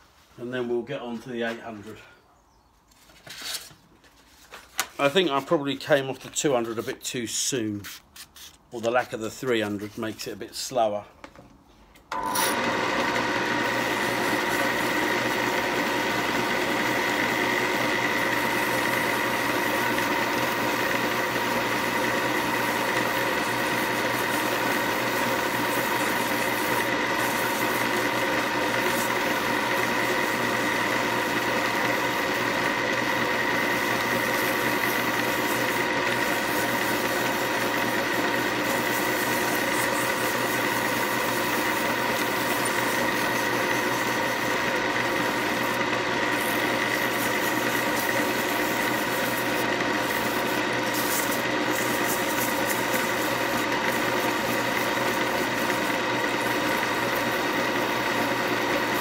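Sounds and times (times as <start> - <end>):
lathe motor whine: 12.1 - 59.0
sandpaper on spinning wood: 13.6 - 59.0.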